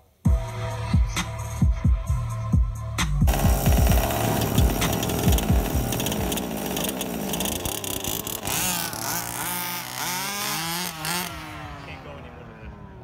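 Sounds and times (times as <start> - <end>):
small two-stroke engines revving: 3.3 - 13.0.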